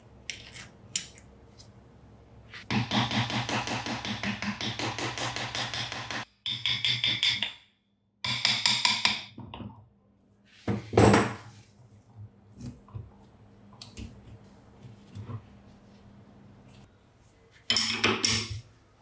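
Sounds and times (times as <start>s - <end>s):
hammer tapping metal: 2.7s - 7.6s, 8.2s - 9.4s.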